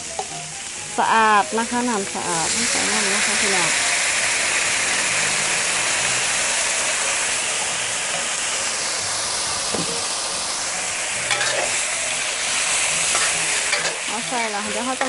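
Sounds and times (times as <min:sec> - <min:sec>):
meat sizzling in a wok: 0:00.0 - 0:15.0
spatula scraping a wok: 0:10.7 - 0:15.0.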